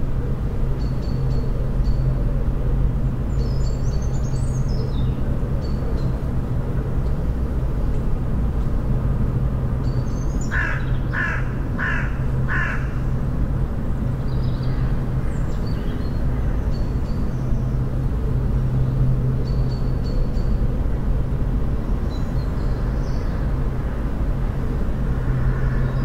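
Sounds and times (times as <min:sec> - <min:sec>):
bird giving loud calls: 0:10.5 - 0:13.0.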